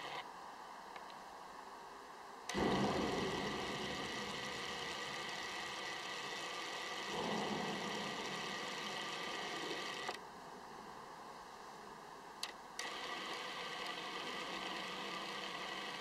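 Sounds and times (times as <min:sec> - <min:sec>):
lens autofocus motor whirring: 0:00.0 - 0:00.2, 0:02.5 - 0:10.2, 0:12.4 - 0:16.0
steady hiss: 0:00.0 - 0:16.0
short clicks: 0:02.5 - 0:04.6, 0:12.4 - 0:14.1.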